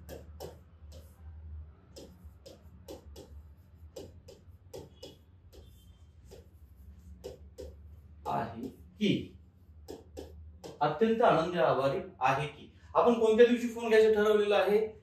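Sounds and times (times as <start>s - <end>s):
stylus tapping on glass screen: 0.0s - 1.2s, 1.9s - 8.9s, 9.8s - 10.9s.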